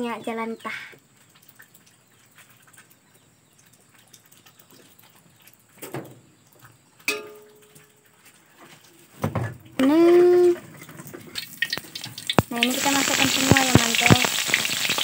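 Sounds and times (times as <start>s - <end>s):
metal knock with ringing tone: 7.1s - 7.5s
oil pouring into a wok: 11.3s - 15.0s.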